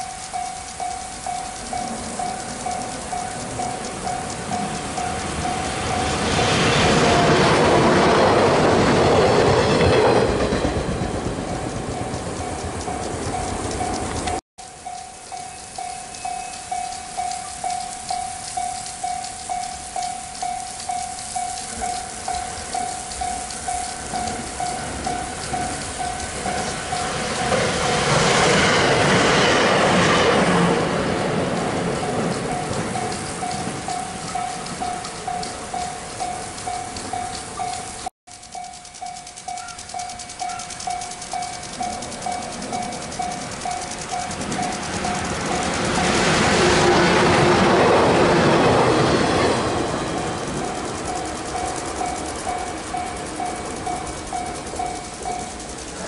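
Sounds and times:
train wheels on rails: 0.0 - 56.0
level crossing bell ringing: 11.9 - 27.8, 31.3 - 46.3.

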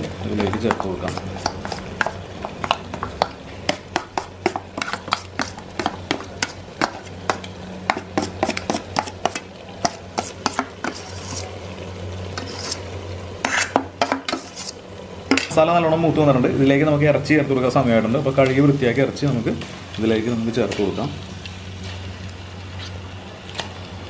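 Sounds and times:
onions sizzling in oil: 0.0 - 24.0
metal spoon scraping steel bowl: 10.2 - 11.5, 12.4 - 12.8, 13.4 - 14.8.

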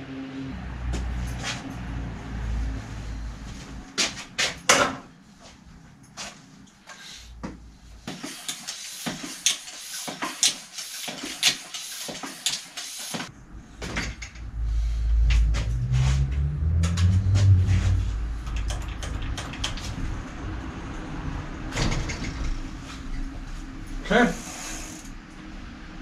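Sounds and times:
clicks and rattles of bicycle repair: 4.0 - 5.1, 6.1 - 14.5, 18.4 - 20.2, 21.7 - 23.2, 24.4 - 25.5.

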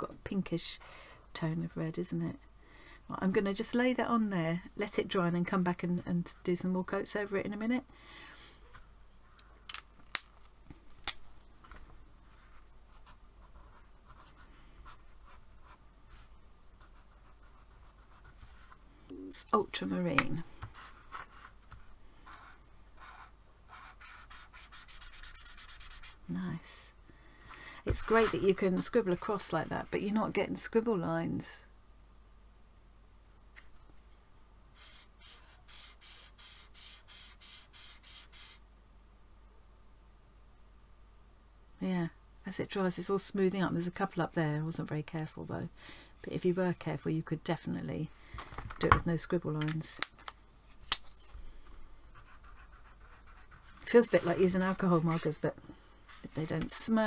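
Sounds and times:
felt tip scratching on paper: 22.2 - 26.2, 34.8 - 38.6, 52.1 - 55.3.

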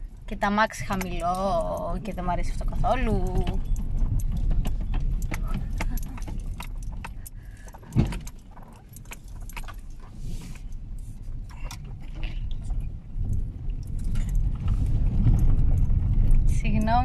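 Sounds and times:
cabin rattles and clicks: 0.0 - 10.1
low road rumble: 0.0 - 17.0
heavy thump: 7.9 - 8.3.

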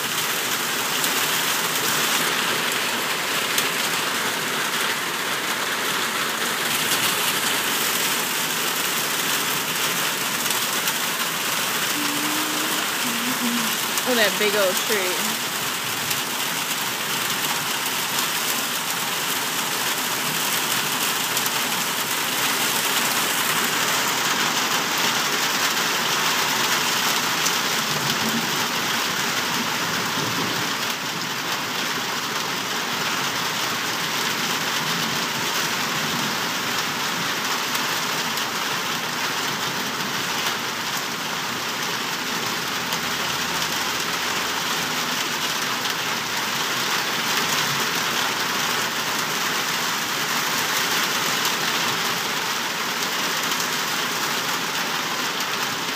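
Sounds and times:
heavy rain pouring: 0.0 - 55.9.

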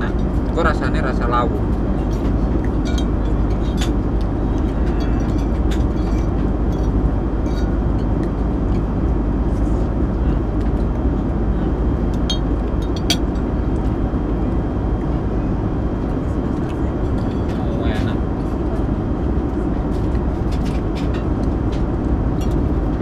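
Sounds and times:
airliner cabin roar: 0.0 - 23.0.

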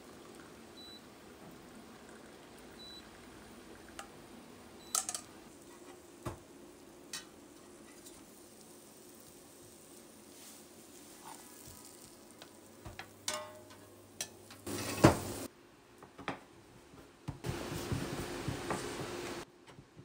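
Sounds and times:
tea trickling through strainer: 0.0 - 0.6, 1.6 - 4.1, 7.5 - 13.0
metal strainer clinking on glass: 13.3 - 14.4.

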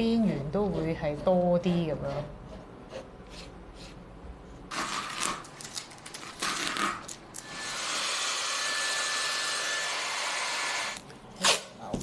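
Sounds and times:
tape ripping off canvas: 4.7 - 7.2
hot-air dryer running: 7.4 - 11.0.

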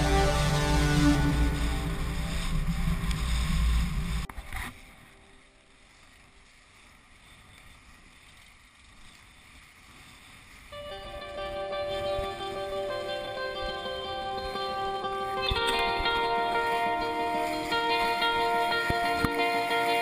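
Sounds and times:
music: 0.0 - 4.3, 10.7 - 20.0.

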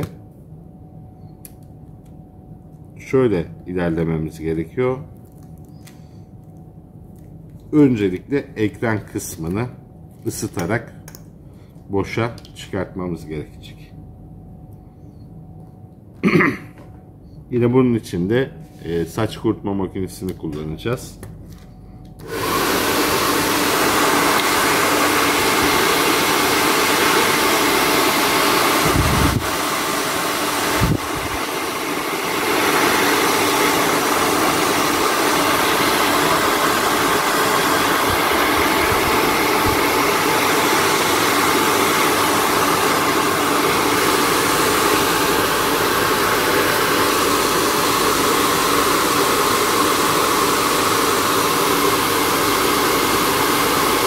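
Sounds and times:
hair dryer blowing: 22.2 - 54.0.

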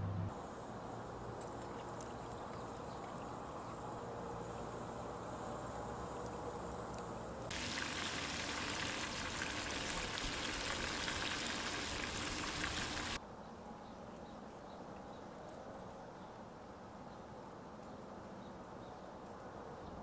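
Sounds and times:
hot oil sizzling: 7.5 - 13.2.

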